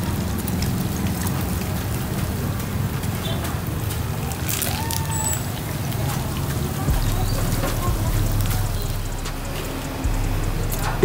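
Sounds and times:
oil sizzling and bubbling: 0:00.0 - 0:11.0
low rumble: 0:06.6 - 0:11.0.

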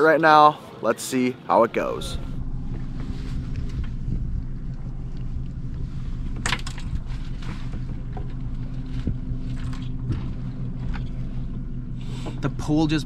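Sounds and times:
boat motor humming: 0:01.6 - 0:13.0
wind on microphone: 0:02.1 - 0:12.1.

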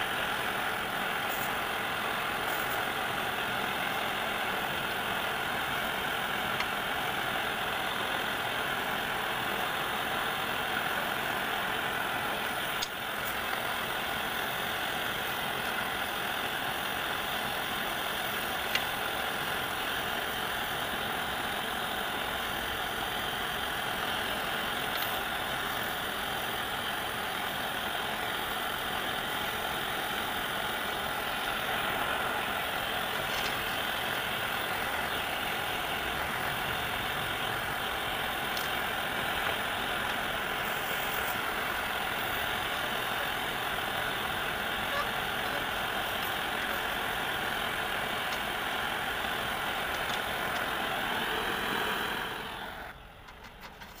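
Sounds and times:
steady machine running noise: 0:00.0 - 0:54.0.

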